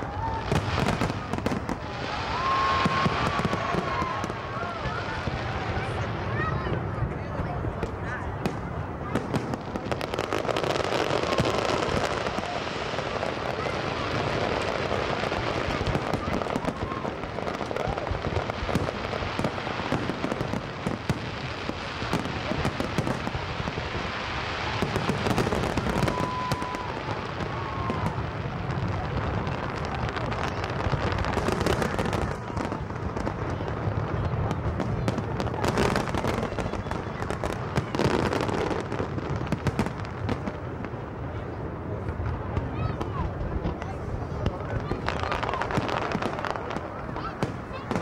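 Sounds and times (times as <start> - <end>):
firework whistle: 0.0 - 5.0, 24.0 - 28.3
fireworks crackling and bangs: 0.0 - 48.0.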